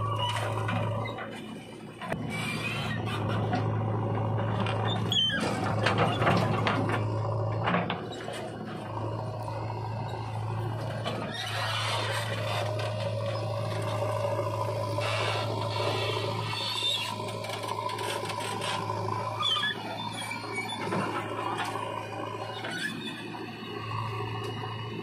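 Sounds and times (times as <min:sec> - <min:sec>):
diesel engines humming: 0:00.0 - 0:25.0
clattering and scraping: 0:00.2 - 0:08.6.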